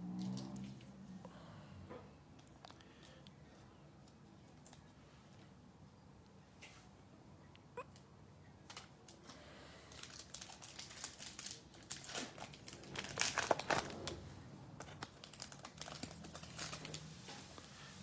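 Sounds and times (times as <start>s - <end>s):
foil wrapper tearing and crinkling: 9.9s - 14.2s, 14.8s - 17.1s.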